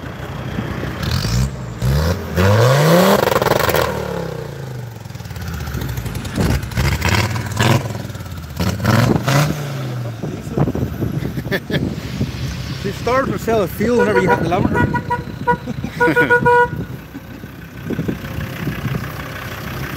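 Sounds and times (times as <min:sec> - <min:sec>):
diesel engine revving: 0:00.0 - 0:19.9.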